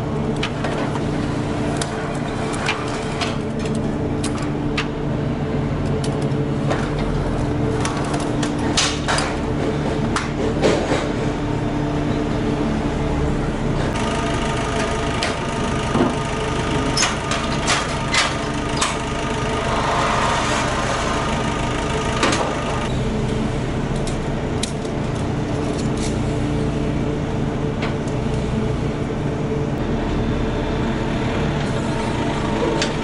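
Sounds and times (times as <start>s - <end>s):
engine idling: 0.0s - 33.0s.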